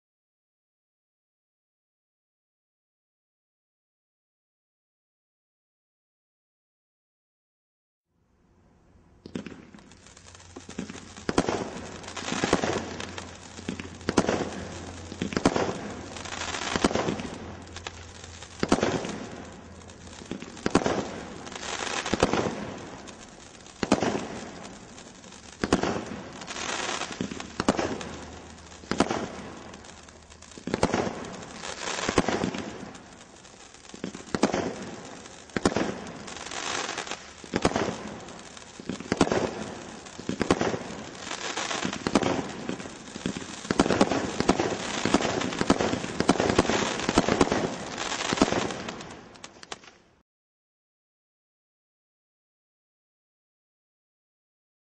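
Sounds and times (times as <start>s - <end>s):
firework hiss: 9.2s - 49.9s
firework crackling: 9.2s - 50.2s.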